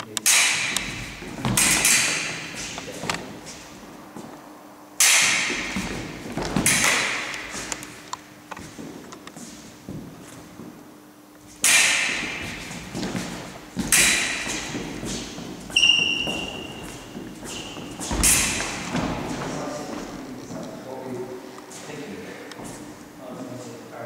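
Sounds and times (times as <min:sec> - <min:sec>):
fencing blades striking: 0:00.1 - 0:04.3, 0:05.0 - 0:09.3, 0:11.5 - 0:20.2
footwork stamping on wooden floor: 0:00.7 - 0:04.4, 0:05.4 - 0:09.1, 0:09.8 - 0:10.8, 0:12.1 - 0:20.7.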